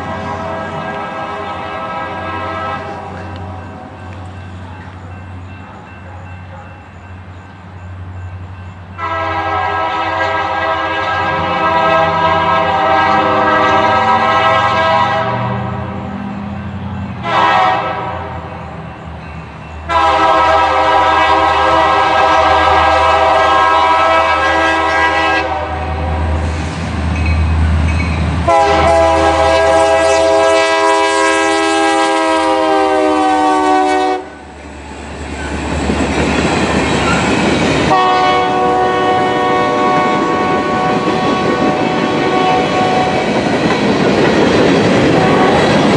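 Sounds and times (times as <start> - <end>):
locomotive horn blasts: 0.0 - 3.8, 9.0 - 16.0, 17.2 - 18.5, 19.9 - 26.1, 28.4 - 34.4, 37.9 - 43.2, 45.1 - 45.8
low locomotive engine rumble: 0.0 - 45.9
freight cars rolling past: 11.0 - 30.4, 34.1 - 45.9.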